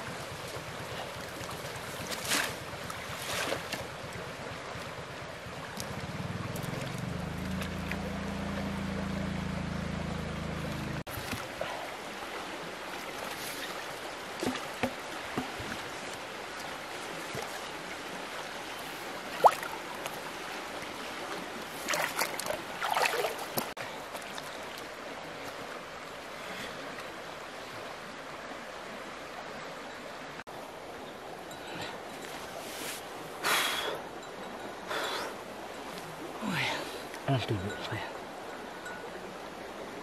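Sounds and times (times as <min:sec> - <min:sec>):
river water flowing over shallows: 0:00.0 - 0:40.0
hands splashing in water: 0:21.8 - 0:23.7.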